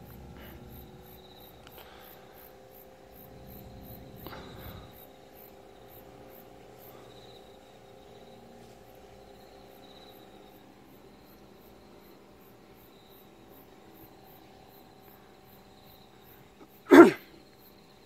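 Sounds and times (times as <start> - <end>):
insects chirping: 0.0 - 18.0
steady low hum: 0.0 - 18.0
bump: 3.2 - 5.0.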